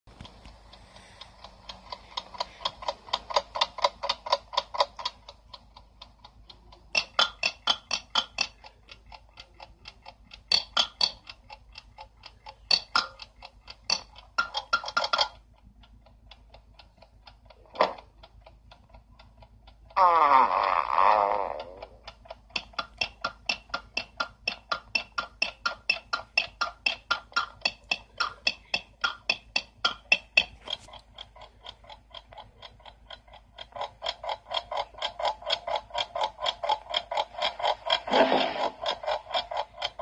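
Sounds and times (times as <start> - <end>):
cartoon alarm clock ticking: 0.1 - 40.0.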